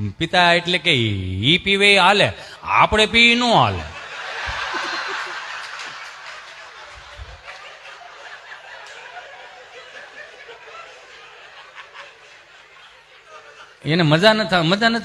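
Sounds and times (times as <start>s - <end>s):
audience laughing: 3.7s - 14.1s.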